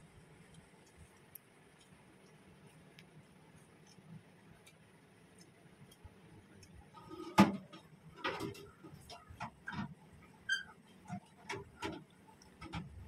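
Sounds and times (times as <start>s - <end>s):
fingers and leaf clicking: 0.4s - 6.9s.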